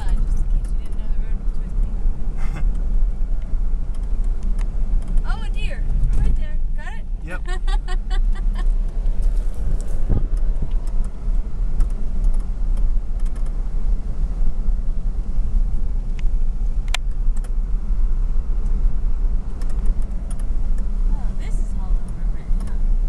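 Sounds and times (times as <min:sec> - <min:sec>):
car interior rumble: 0:00.0 - 0:23.0
rattles and clicks: 0:08.8 - 0:13.6, 0:19.5 - 0:20.9.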